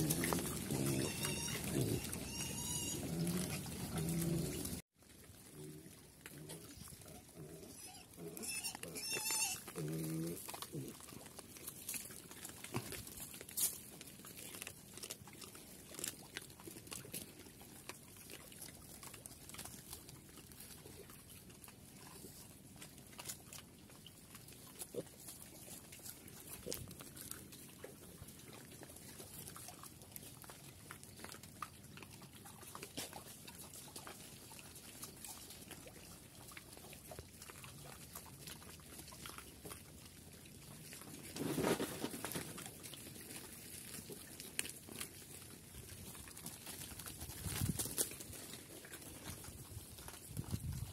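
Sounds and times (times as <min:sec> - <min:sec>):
piglets grunting and snuffling: 0:00.0 - 0:50.9
crackles and scuffs in litter: 0:40.8 - 0:50.9.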